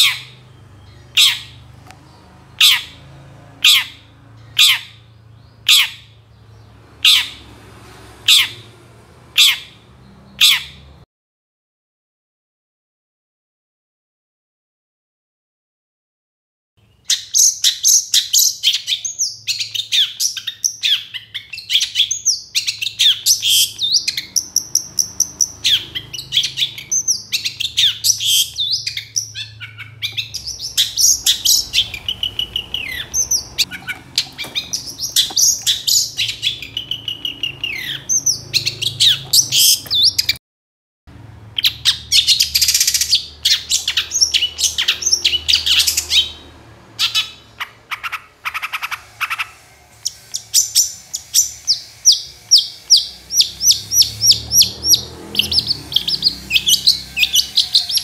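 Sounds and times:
shrike song with whistles and trills: 0.0 - 1.7, 3.6 - 7.5, 8.3 - 8.7, 16.8 - 40.4, 41.5 - 58.0.

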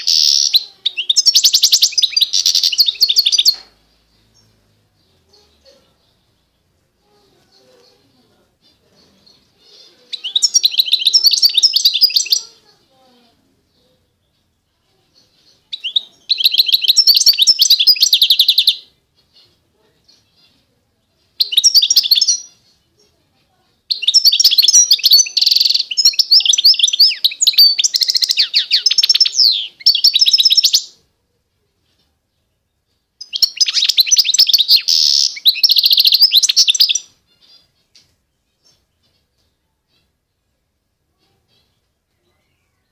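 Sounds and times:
finch twittering trills: 23.9 - 31.0, 33.2 - 40.1.

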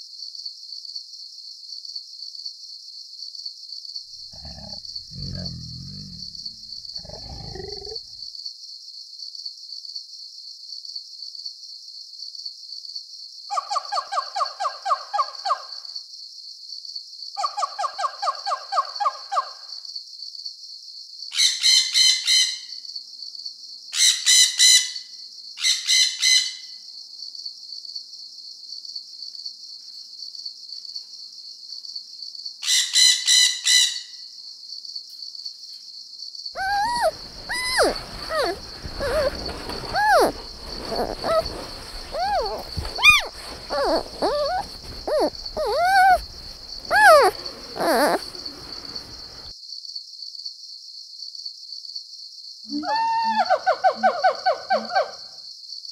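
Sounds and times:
parrot squawks: 36.6 - 49.0
bird rapid trills: 36.6 - 49.5
sliding whistling bird calls: 36.6 - 49.5
high-pitched insect drone: 42.2 - 48.6.

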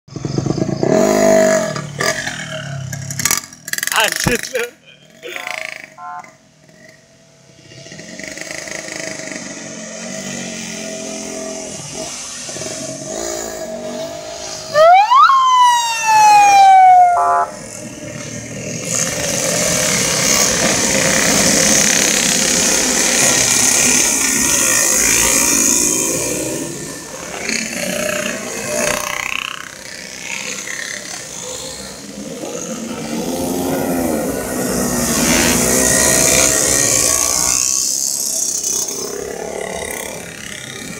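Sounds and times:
motorcycle engines: 0.1 - 40.9
siren wailing: 14.7 - 17.7.

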